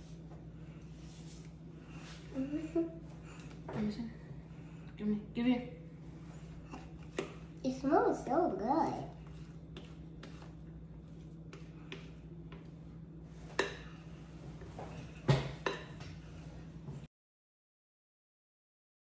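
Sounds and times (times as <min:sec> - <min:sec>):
steady low hum: 0:00.0 - 0:17.1
spatula scraping batter from bowl: 0:09.2 - 0:12.8.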